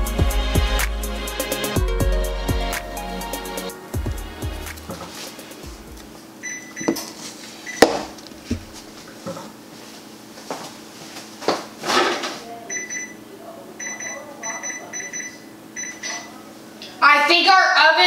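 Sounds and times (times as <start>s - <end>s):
steady low hum: 2.0s - 11.8s
short electronic beeps: 13.8s - 16.3s.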